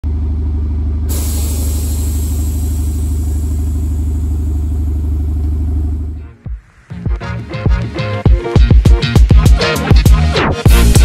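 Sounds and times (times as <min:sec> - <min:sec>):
car engine idling: 0:00.1 - 0:06.2
steady hiss: 0:01.1 - 0:05.2.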